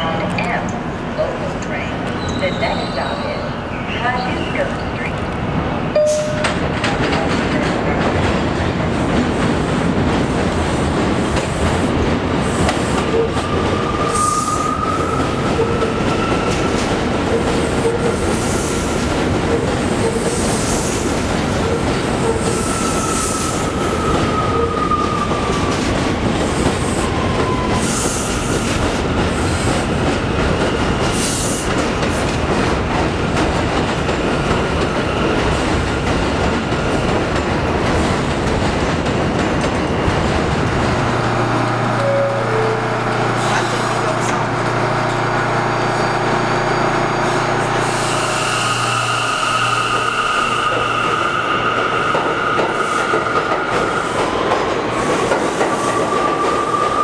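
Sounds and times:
high train whine: 0.0s - 57.0s
train rumble with wheel clatter: 0.0s - 57.0s
underground station hum: 28.4s - 57.0s.

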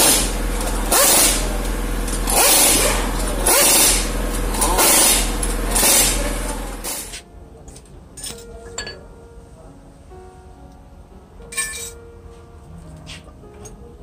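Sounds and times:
spray hissing bursts: 0.0s - 7.2s
background music: 7.1s - 14.0s.

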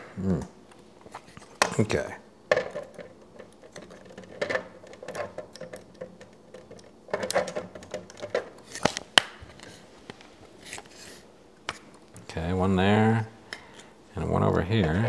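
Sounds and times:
plastic pieces clicking and rattling: 2.5s - 9.7s.

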